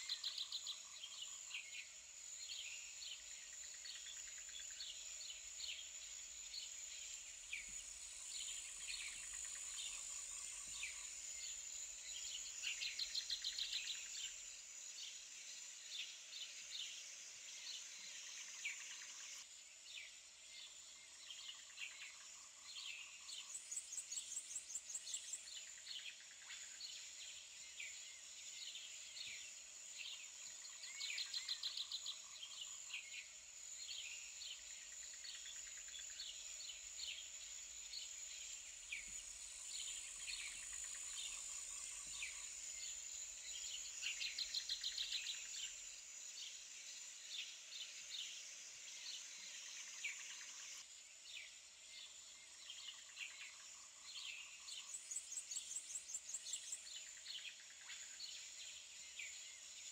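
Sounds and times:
steady high-pitched hiss: 0.0 - 59.9
small birds chirping: 20.0 - 59.9.

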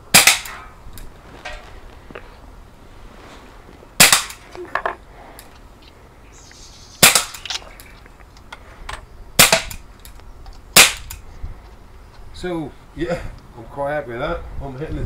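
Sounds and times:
air pistol pops: 4.0 - 4.5, 7.0 - 7.9, 10.8 - 11.2.

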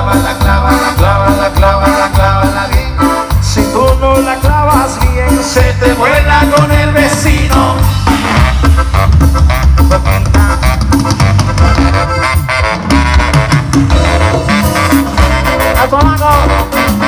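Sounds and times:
live cumbia band playing: 0.0 - 17.0.

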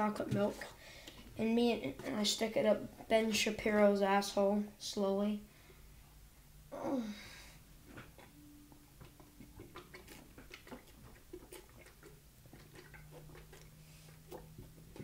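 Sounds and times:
soft gulping and swallowing: 7.8 - 8.4, 9.0 - 15.0.

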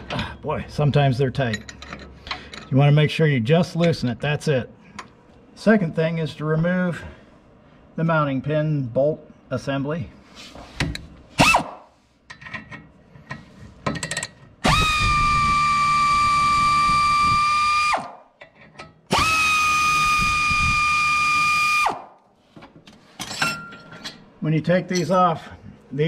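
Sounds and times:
air ratchet whining: 14.6 - 18.1, 19.1 - 22.0.

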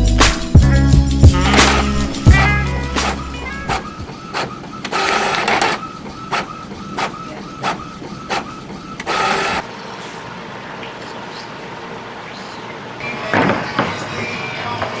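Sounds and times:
printer carriage passes: 3.0 - 9.7.

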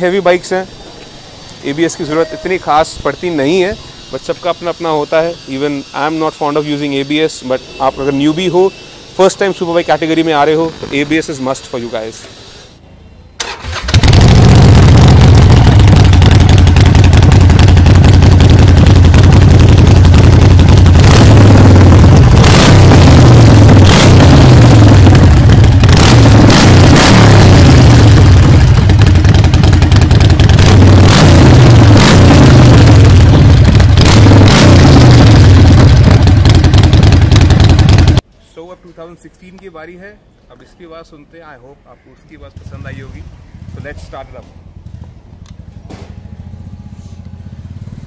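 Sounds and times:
motorcycle engine revving: 8.2 - 12.7, 13.4 - 38.2, 42.6 - 48.0.

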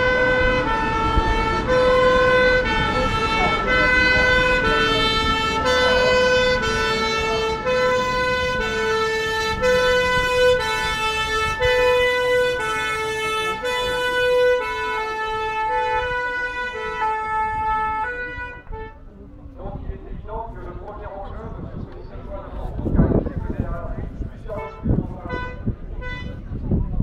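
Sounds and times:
two-tone fire engine siren: 0.0 - 19.0.

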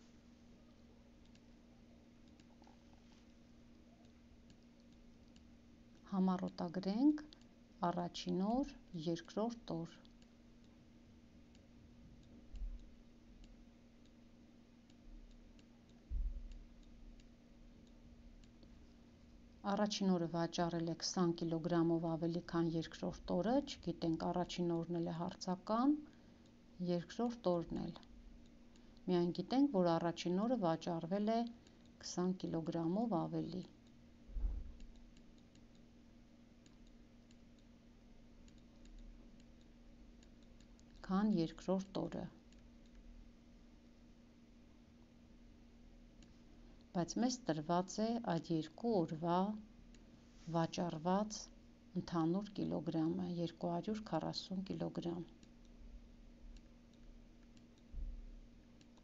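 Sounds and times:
steady low hum: 0.0 - 59.0
stylus clicking on tablet: 1.2 - 1.5, 2.2 - 2.8, 38.4 - 43.0
dull low thump: 16.1 - 16.5, 34.3 - 34.8.

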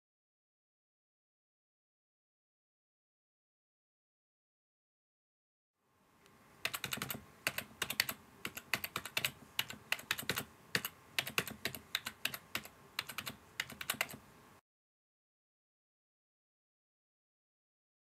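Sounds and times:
typing on keyboard: 6.6 - 14.2.

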